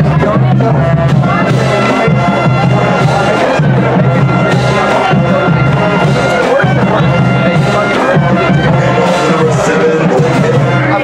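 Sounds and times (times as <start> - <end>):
music with held notes: 0.0 - 11.0
pulsing low beat: 0.0 - 11.0.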